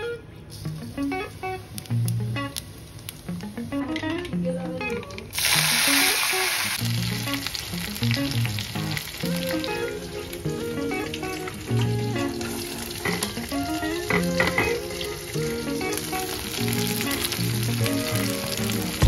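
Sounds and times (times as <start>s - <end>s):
background music: 3.3s - 6.2s, 6.8s - 19.0s
food sizzling in hot oil: 5.3s - 19.0s.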